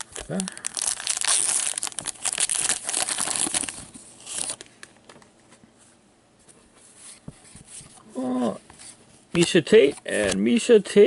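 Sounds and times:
plastic wrapper tearing and crinkling: 0.0 - 4.7.

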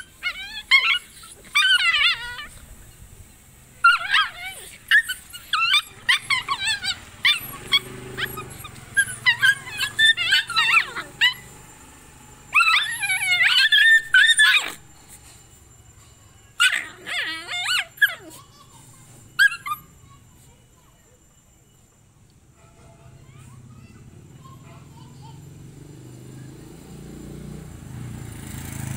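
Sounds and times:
puppies yipping and whining: 0.0 - 20.7.

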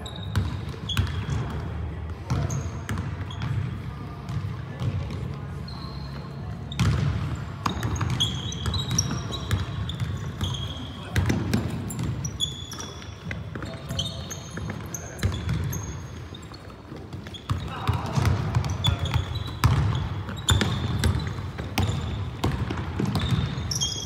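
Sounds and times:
sneaker squeaks: 0.0 - 24.0
basketball bouncing: 0.3 - 1.6, 6.7 - 16.3, 16.9 - 23.7.

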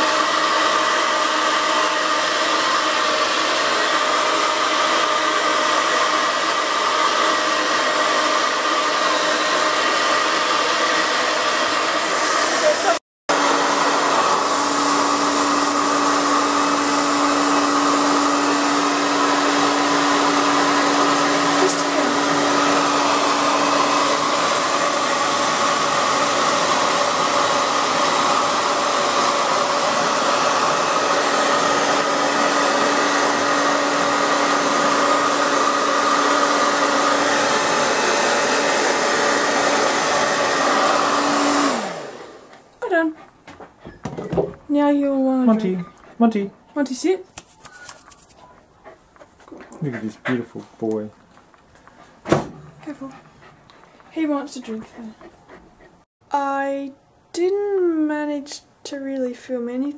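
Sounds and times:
hair dryer blowing: 0.0 - 43.2, 52.3 - 55.3.

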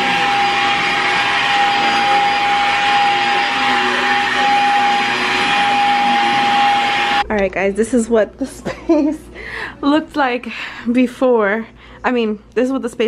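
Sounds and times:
vacuum cleaner running on carpet: 0.0 - 7.2.

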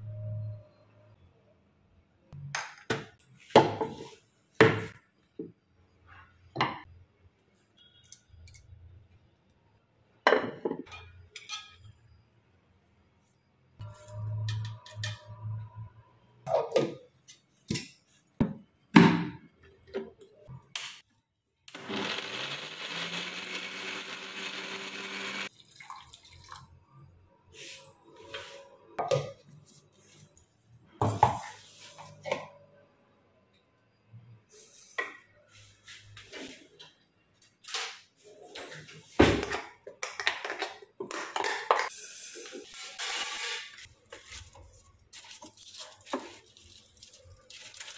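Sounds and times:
electric mixer grinder running: 21.7 - 25.5.

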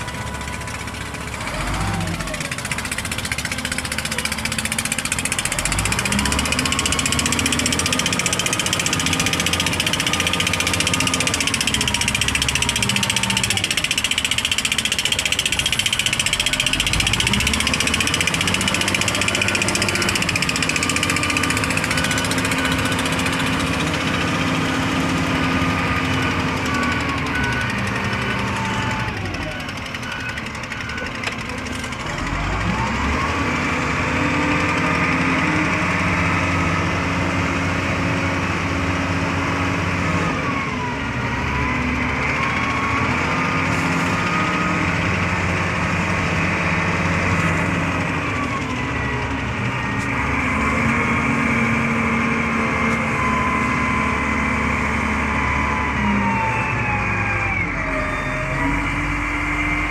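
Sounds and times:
diesel engine revving under load: 0.0 - 59.9.

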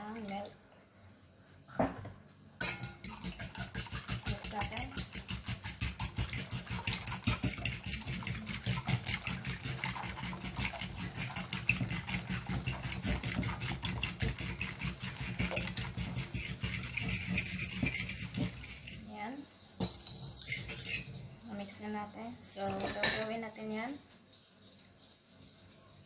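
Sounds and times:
spoon beating eggs in glass bowl: 2.6 - 19.1.

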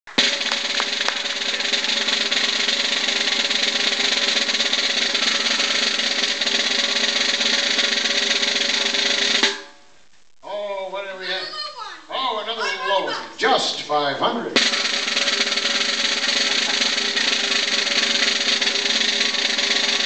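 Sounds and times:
snare drum roll: 0.1 - 9.8, 14.6 - 20.0.

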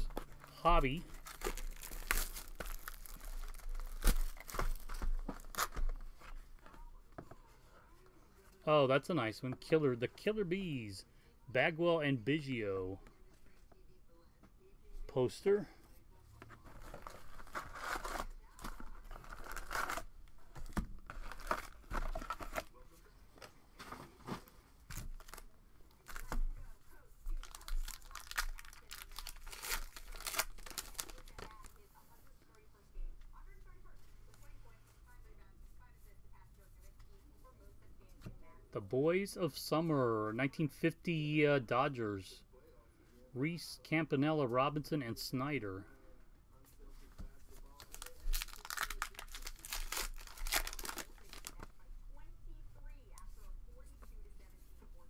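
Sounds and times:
wrapper crinkling: 0.0 - 5.8, 16.6 - 20.1, 21.1 - 22.7, 27.3 - 31.8, 47.6 - 51.7
wrapper tearing: 1.1 - 5.8, 16.8 - 20.1, 27.4 - 31.5, 47.8 - 51.6.

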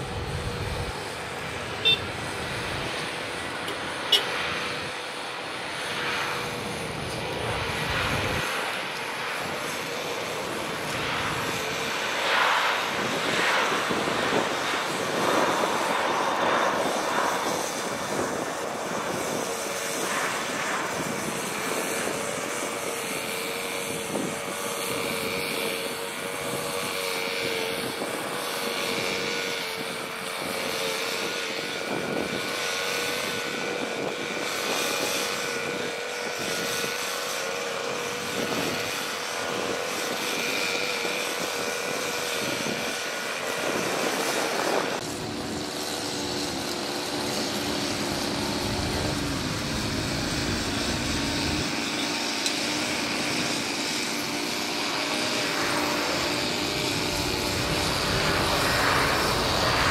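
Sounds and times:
distant jet climbing whine: 0.0 - 59.9
jet engines rumbling on runway: 0.0 - 59.9.

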